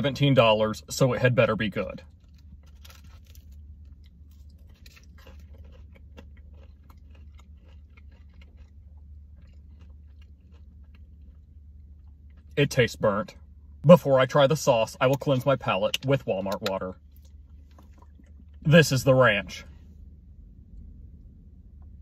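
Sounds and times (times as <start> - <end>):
person chewing crunchy food: 2.0 - 12.7, 15.0 - 18.7.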